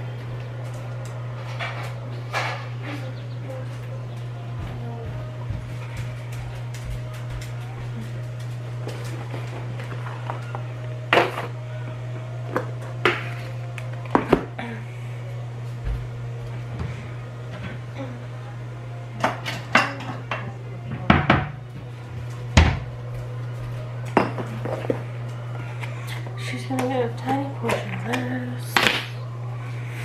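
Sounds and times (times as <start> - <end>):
steady low hum: 0.0 - 30.0
plates and bowls clinking: 19.2 - 21.6, 24.0 - 25.0.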